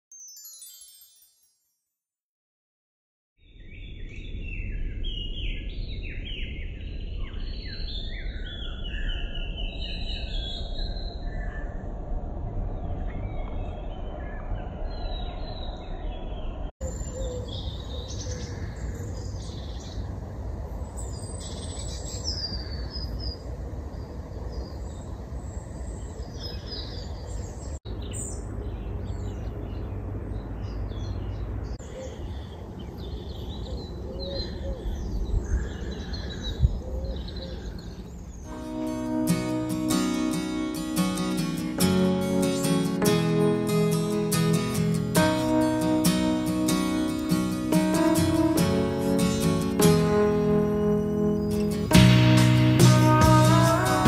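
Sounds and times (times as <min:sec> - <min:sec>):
birds chirping and singing: 0:25.9 - 0:54.0.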